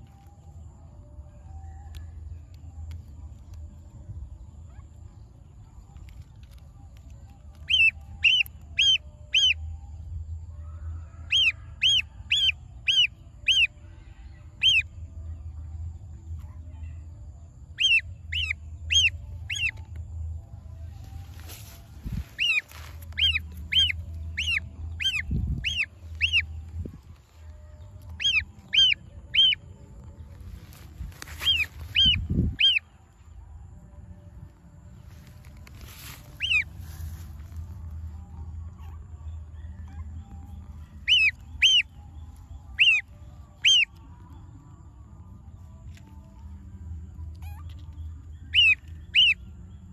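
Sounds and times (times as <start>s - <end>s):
gosling peeping: 7.6s - 9.6s, 11.3s - 13.7s, 17.8s - 19.8s, 22.1s - 26.9s, 28.1s - 29.6s, 31.3s - 32.8s, 36.3s - 36.8s, 41.0s - 41.9s, 42.7s - 44.0s, 48.5s - 49.4s.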